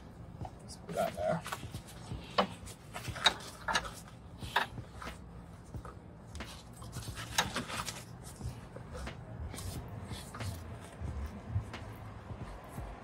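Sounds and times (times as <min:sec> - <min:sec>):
paper towels rustling: 0:06.4 - 0:12.8.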